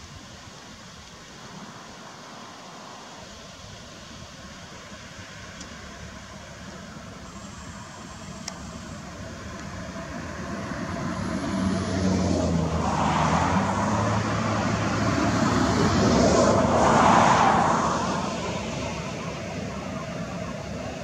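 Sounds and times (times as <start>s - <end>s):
wind rushing over microphone: 8.3s - 21.0s.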